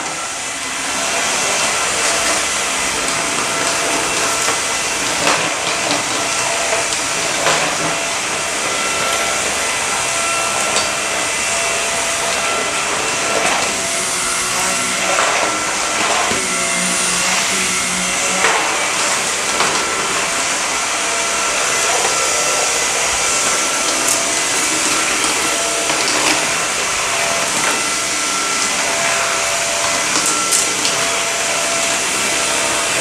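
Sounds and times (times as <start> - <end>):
stick vacuum running over carpet: 0.0 - 33.0.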